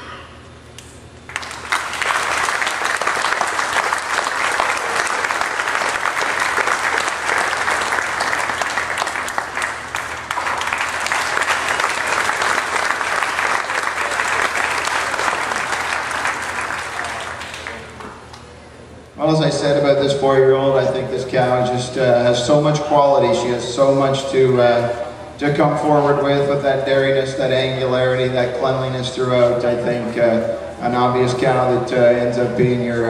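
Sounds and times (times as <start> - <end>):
crowd clapping: 1.3 - 18.5.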